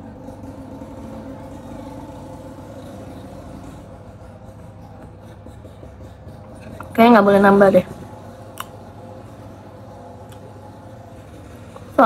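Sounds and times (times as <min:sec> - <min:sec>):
low mechanical drone: 0:00.0 - 0:12.0.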